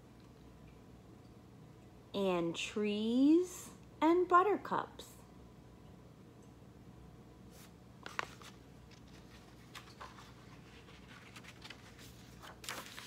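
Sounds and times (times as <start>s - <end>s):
paper pages rustling and turning: 7.5s - 13.0s.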